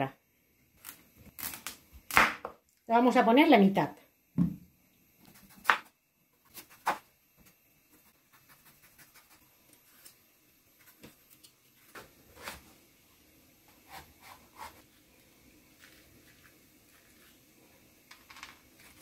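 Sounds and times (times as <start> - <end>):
knife knocking on wooden board: 4.4 - 4.6.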